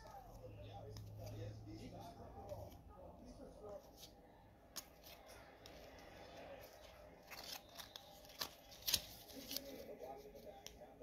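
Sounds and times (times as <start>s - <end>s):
trading cards rustling: 0.0s - 11.0s
card edges snapping: 3.9s - 10.0s.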